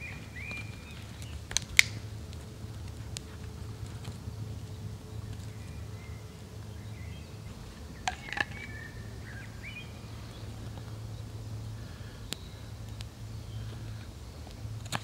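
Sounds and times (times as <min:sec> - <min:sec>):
sharp snaps: 0:00.0 - 0:04.2, 0:11.8 - 0:15.0
low background rumble: 0:00.0 - 0:15.0
small birds chirping: 0:00.0 - 0:15.0.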